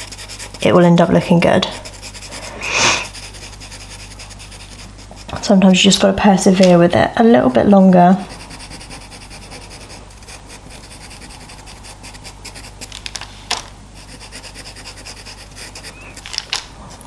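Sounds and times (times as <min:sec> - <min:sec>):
pencil scratching on paper: 0:00.0 - 0:05.6, 0:08.3 - 0:12.9, 0:14.0 - 0:16.2.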